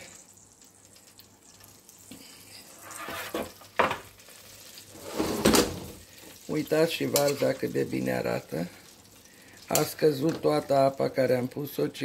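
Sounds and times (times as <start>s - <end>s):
faint sizzling fat: 0.0s - 12.0s
metal tray scraping: 2.8s - 3.6s, 4.9s - 6.0s.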